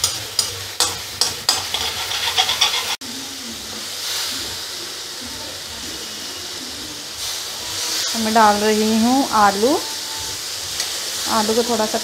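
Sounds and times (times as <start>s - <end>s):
metal spatula scraping a pan: 0.0s - 3.0s
oil sizzling: 0.0s - 12.0s.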